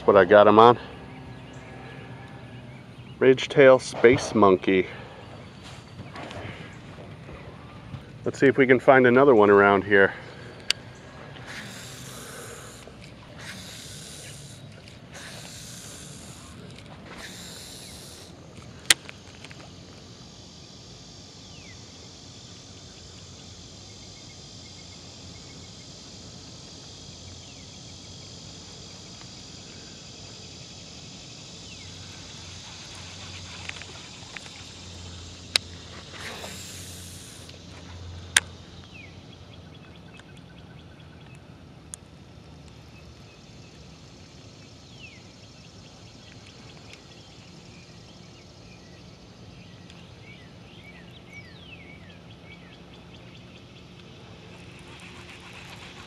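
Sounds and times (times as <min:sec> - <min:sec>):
outdoor background hiss: 0:00.0 - 0:56.0
fishing reel whirring: 0:10.6 - 0:23.9, 0:27.7 - 0:37.6, 0:54.4 - 0:56.0
fishing reel clicks: 0:11.5 - 0:19.6.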